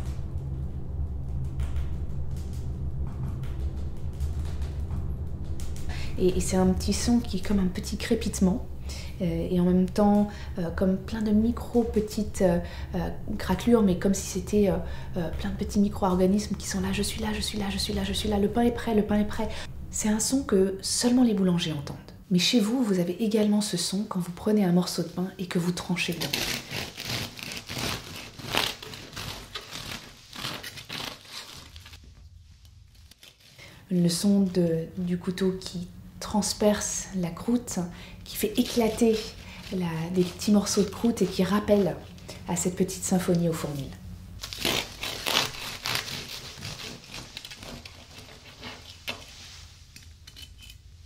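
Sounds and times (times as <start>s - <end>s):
bread crust crackling: 25.8s - 33.6s, 38.2s - 50.2s
bread knife sawing through crust: 26.1s - 31.7s, 44.5s - 49.0s.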